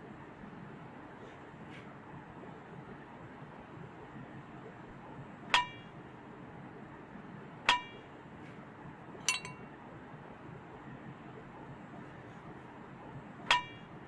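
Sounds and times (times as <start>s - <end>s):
metal cutlery clinking on plate: 9.3s - 9.6s.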